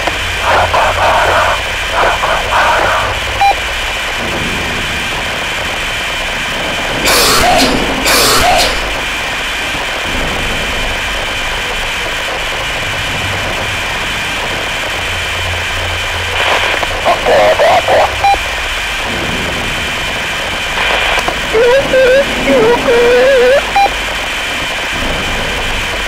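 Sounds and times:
loud bursts of static: 0.0s - 26.0s
low hum and hiss: 0.0s - 26.0s
faint high tones: 21.5s - 24.0s.

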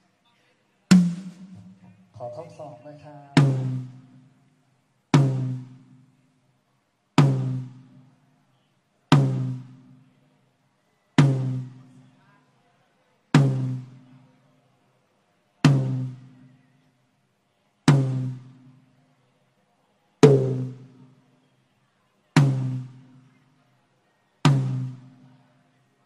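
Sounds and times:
drum hits ringing out: 0.9s - 2.6s, 3.4s - 4.3s, 5.2s - 6.1s, 7.2s - 8.0s, 9.1s - 10.0s, 11.2s - 11.8s, 13.4s - 14.0s, 15.6s - 16.4s, 17.9s - 18.7s, 20.2s - 21.1s, 22.4s - 23.2s, 24.5s - 25.1s.

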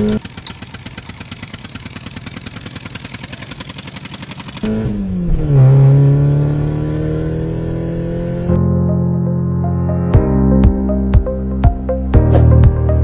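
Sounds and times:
toy tractor engine putter: 0.0s - 4.6s.

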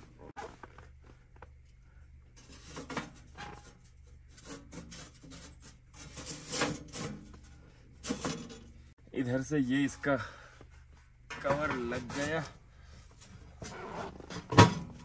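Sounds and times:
metal rubbing: 2.4s - 8.9s.

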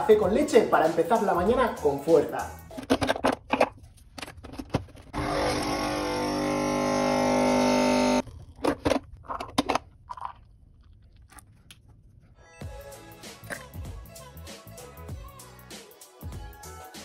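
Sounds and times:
coffee machine humming: 5.1s - 8.2s.

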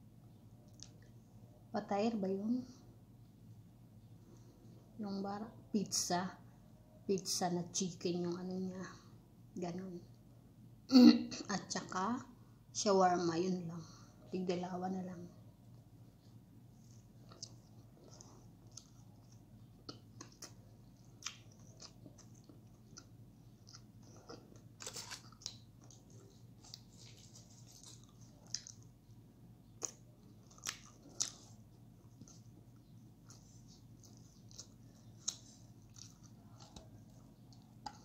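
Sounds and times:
faint low hum: 0.0s - 38.0s
chewing and mouth smacking: 16.9s - 29.0s, 29.7s - 38.0s.

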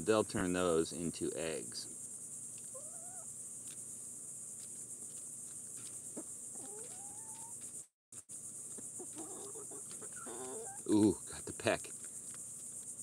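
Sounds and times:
insects chirring: 0.0s - 13.0s
hens calling: 2.6s - 3.4s, 6.1s - 7.7s, 8.7s - 11.8s.

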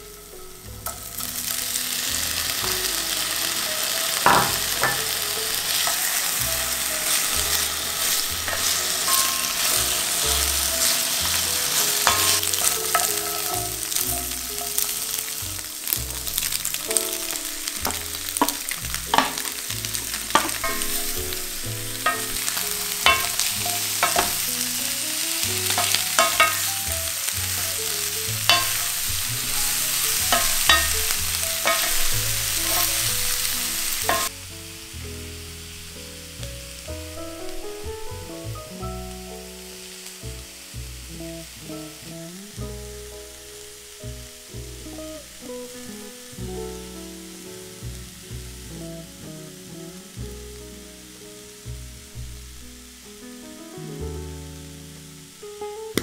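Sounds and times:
vegetables sizzling in oil: 0.0s - 56.0s
wooden spatula scraping pan: 2.3s - 16.8s, 25.5s - 34.3s.

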